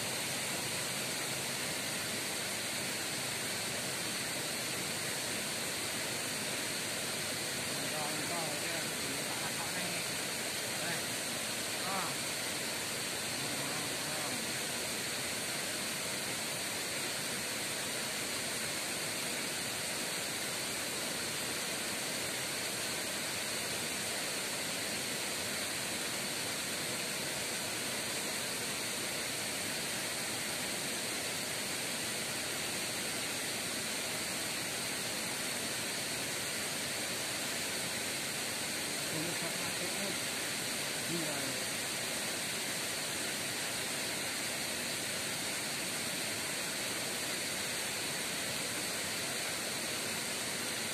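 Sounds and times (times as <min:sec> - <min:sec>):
waterfall rushing: 0:00.0 - 0:50.9.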